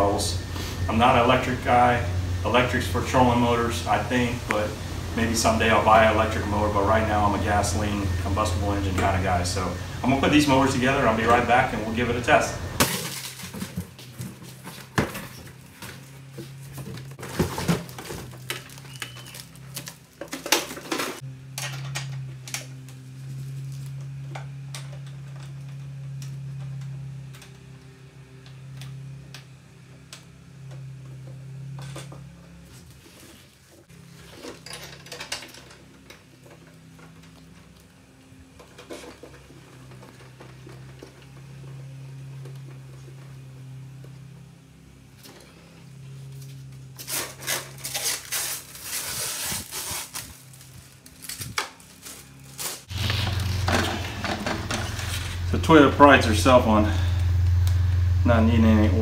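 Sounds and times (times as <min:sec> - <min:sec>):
steady low hum: 0:00.0 - 0:59.0
cardboard rustling: 0:12.2 - 0:21.2
parts knocking and clattering: 0:12.7 - 0:22.7, 0:34.2 - 0:37.7, 0:52.9 - 0:55.6.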